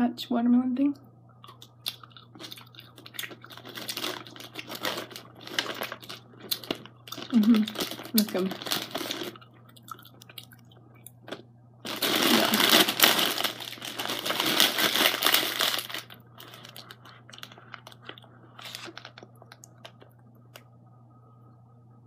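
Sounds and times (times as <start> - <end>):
plastic bag crinkling: 2.4 - 10.6, 11.3 - 20.1
soft crackles and clicks: 13.7 - 20.8.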